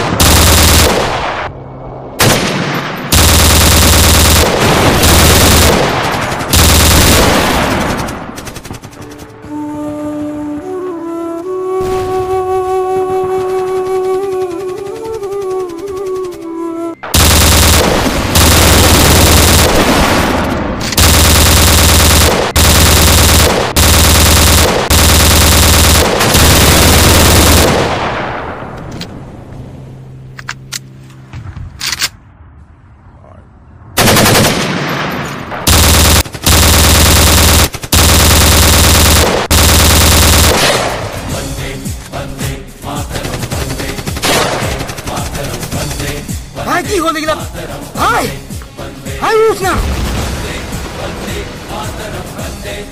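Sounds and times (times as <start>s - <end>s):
machine-gun fire bursts: 0.0s - 1.2s, 2.2s - 9.2s, 17.2s - 28.0s, 34.0s - 34.9s, 35.6s - 41.2s, 43.2s - 46.3s
single gunshots: 44.2s - 44.8s.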